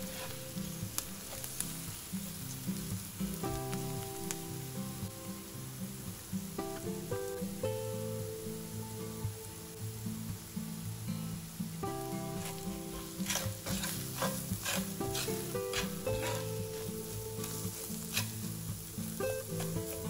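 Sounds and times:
utensil scraping a pan: 0.0s - 1.5s, 12.4s - 20.0s
food sizzling in a pan: 0.0s - 20.0s
gentle background music: 0.0s - 20.0s.

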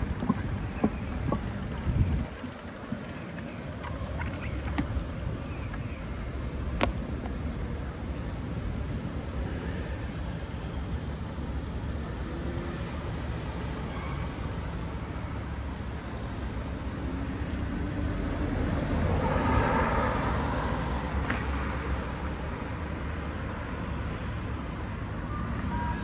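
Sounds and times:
low rumble of street traffic: 0.0s - 26.0s
car passing: 16.4s - 25.4s.

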